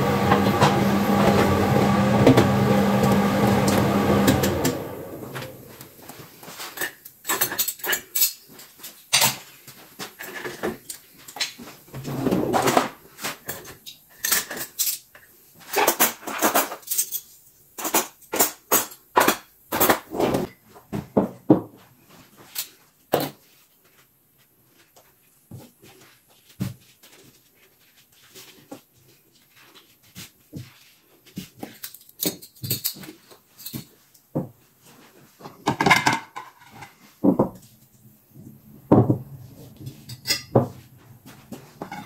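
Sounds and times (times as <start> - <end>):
dishes and cutlery clinking: 6.6 - 9.5, 31.6 - 34.0, 35.6 - 37.5, 39.9 - 40.8, 41.8 - 42.0
cupboard doors and drawers knocking: 38.9 - 39.4.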